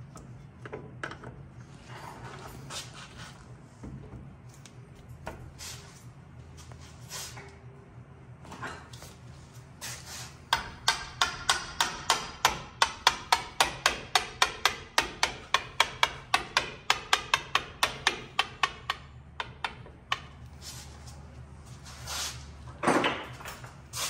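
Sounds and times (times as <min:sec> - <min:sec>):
hammer tapping on metal: 0:10.5 - 0:20.4.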